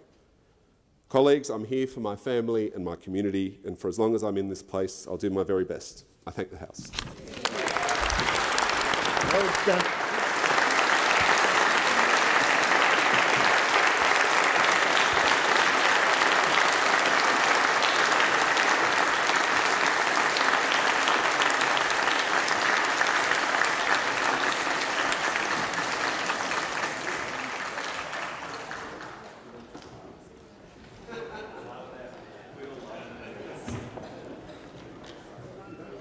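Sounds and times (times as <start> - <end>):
crowd applauding: 7.0 - 29.6.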